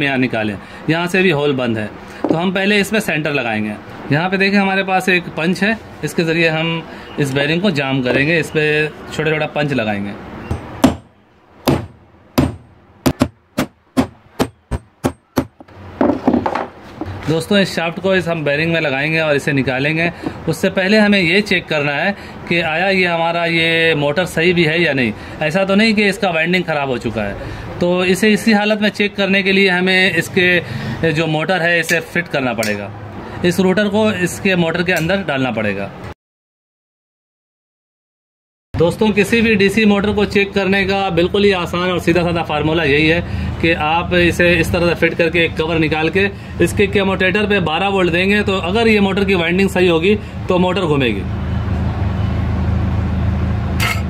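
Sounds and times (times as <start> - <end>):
hammer tapping steel punch: 10.5 - 11.1, 11.7 - 15.7.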